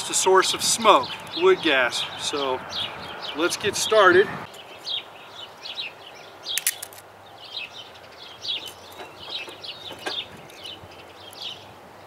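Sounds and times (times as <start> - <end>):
small birds chirping: 0.0 - 12.0
wooden sticks clacking: 6.6 - 7.0.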